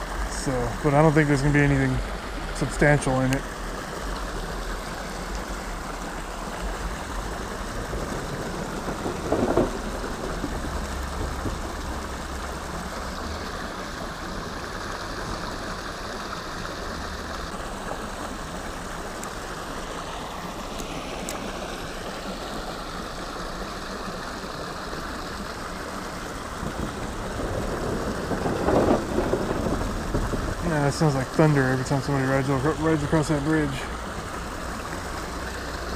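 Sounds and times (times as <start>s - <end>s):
water spilling over outflow: 0.0s - 35.9s
rumble of wooden footbridge: 6.5s - 14.5s, 26.3s - 32.1s.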